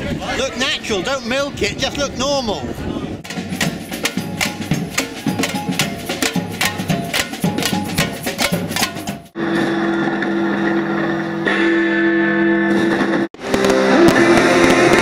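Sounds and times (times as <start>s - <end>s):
percussion band drumming: 3.2s - 9.4s.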